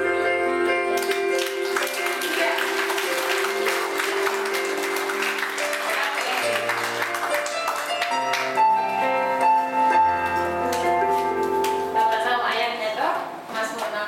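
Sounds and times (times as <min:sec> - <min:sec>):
applause: 0:01.0 - 0:08.6.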